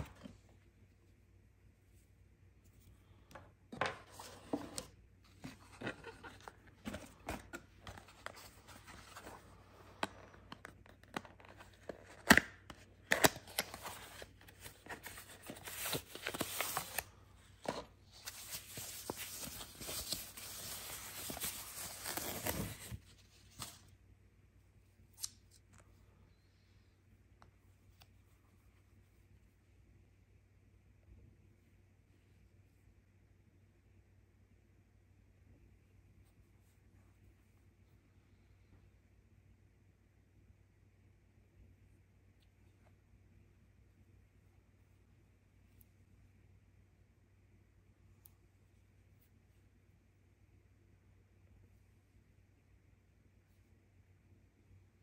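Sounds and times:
cardboard packaging rustling: 13.2s - 23.8s.

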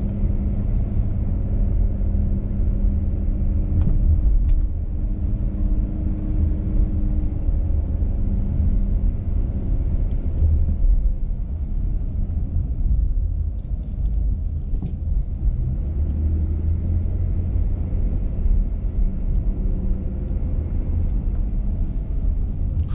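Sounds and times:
car engine and road noise: 0.0s - 22.9s.

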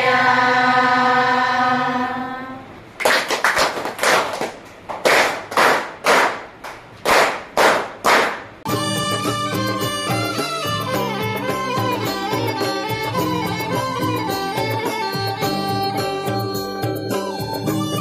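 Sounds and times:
people chanting a song: 0.0s - 2.6s
group clapping in rhythm: 3.0s - 8.7s
music: 8.7s - 18.0s.

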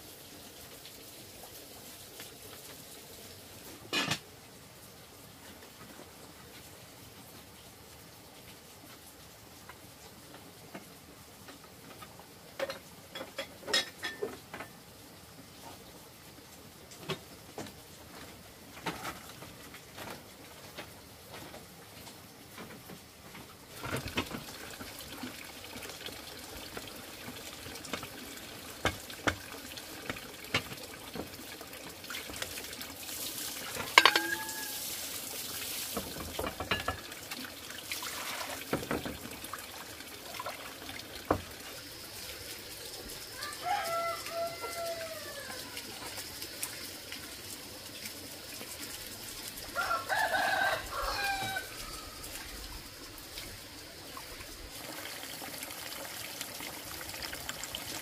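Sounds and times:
running splashing water: 22.7s - 58.0s
knocks and clinks: 33.8s - 34.7s
rooster crowing: 43.3s - 45.8s, 49.7s - 52.6s.

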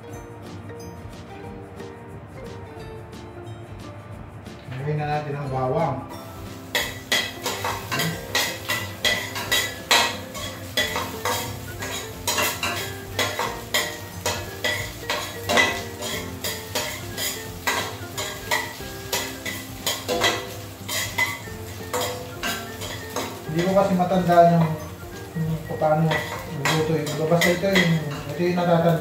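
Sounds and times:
garlic sizzling in hot oil: 6.1s - 29.0s
metal spoon scraping a pot: 6.7s - 23.7s.

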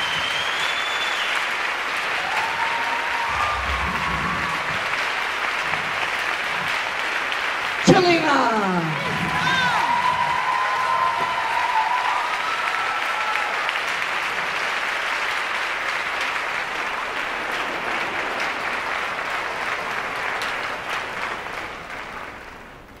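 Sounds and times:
high cheer: 0.0s - 15.7s
audience applauding: 0.0s - 23.0s.

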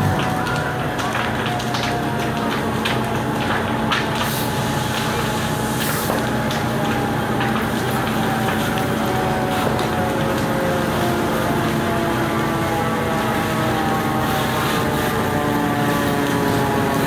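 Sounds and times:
sharp cracks: 0.0s - 10.7s
fire engine running: 0.0s - 17.0s
water spraying: 0.0s - 17.0s.

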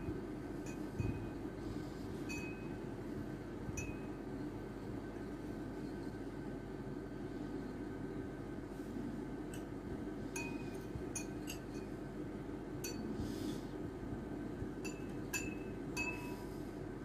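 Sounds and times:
steady low hum: 0.0s - 17.0s
metal spoon clinking against glass: 10.4s - 11.9s.

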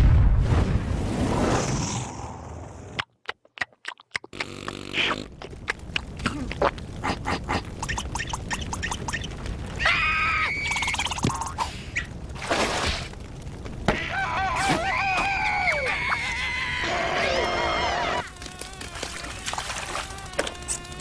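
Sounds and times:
sharp crackling clicks: 3.0s - 9.8s, 14.8s - 21.0s
high wavering cartoon scream: 9.8s - 11.2s, 14.0s - 21.0s.

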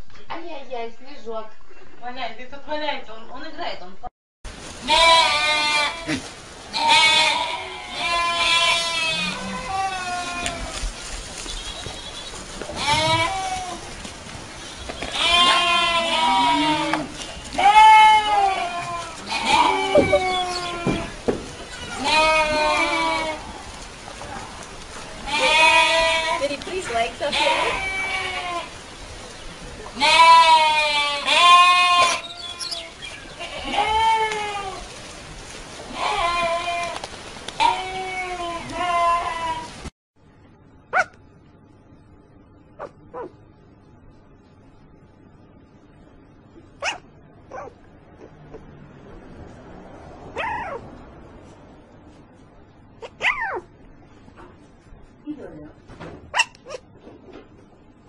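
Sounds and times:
young goats bleating: 4.8s - 14.0s, 14.6s - 28.8s, 29.8s - 35.0s, 35.9s - 39.8s.

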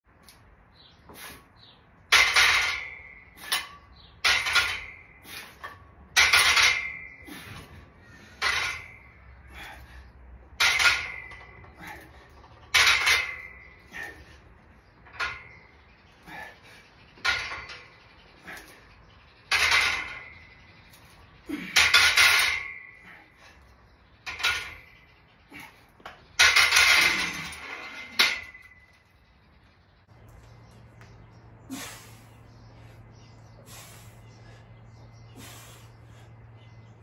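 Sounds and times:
barbell and weight plates clanking: 2.1s - 16.6s, 17.2s - 29.1s.

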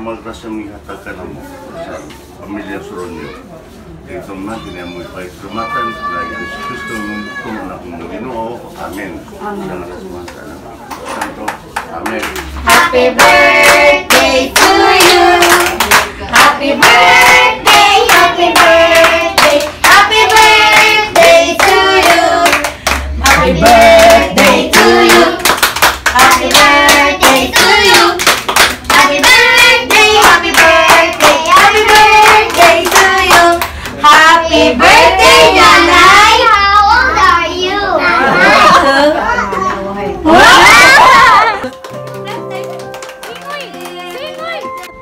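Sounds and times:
voices singing: 12.6s - 25.6s, 26.2s - 28.2s, 28.9s - 39.0s
hand clapping in time: 41.6s - 45.0s.

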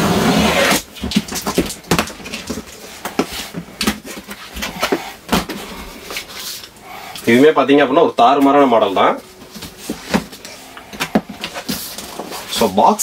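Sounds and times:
box cutter slitting packing tape: 0.0s - 2.4s
cardboard flaps handled: 9.4s - 12.5s.

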